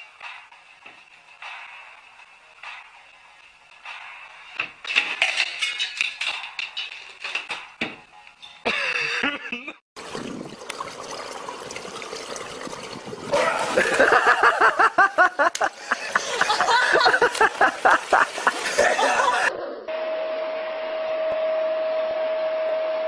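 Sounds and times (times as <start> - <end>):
water splashing in a pool: 10.0 - 19.5
excited voices: 18.7 - 19.5.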